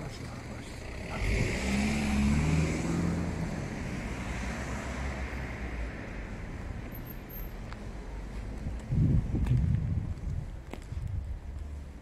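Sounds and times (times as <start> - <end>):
vehicle driving past: 0.8 - 6.6.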